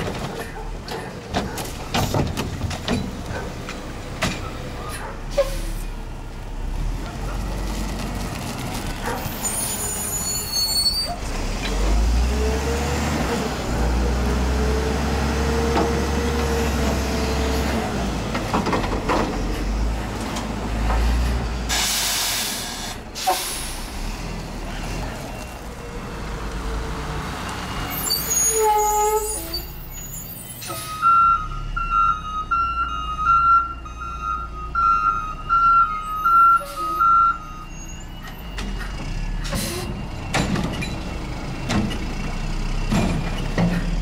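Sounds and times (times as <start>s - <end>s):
clanks and squeaks: 0.0s - 3.5s, 9.0s - 11.8s, 27.8s - 31.1s, 36.1s - 42.1s
diesel engine revving: 3.1s - 28.5s
air brake hiss: 21.7s - 24.0s.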